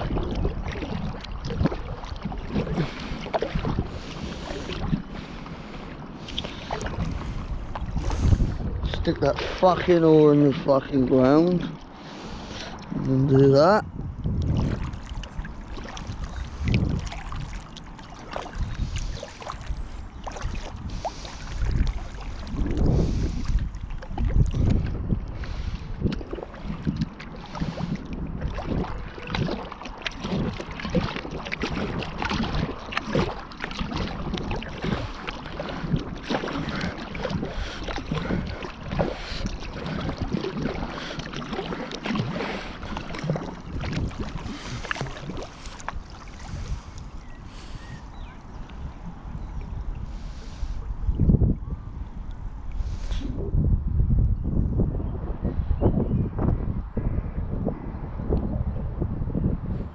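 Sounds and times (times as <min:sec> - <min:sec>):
water splashing and lapping: 0:00.0 - 0:53.7
wind on microphone: 0:00.0 - 0:59.9.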